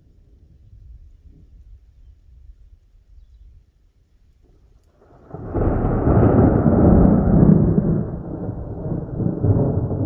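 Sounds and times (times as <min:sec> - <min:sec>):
thunder rumbling: 0:05.0 - 0:10.0.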